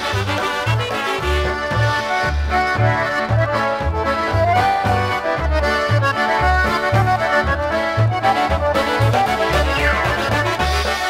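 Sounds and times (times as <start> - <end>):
concertina melody: 0.0 - 11.0
polka band playing: 0.0 - 11.0.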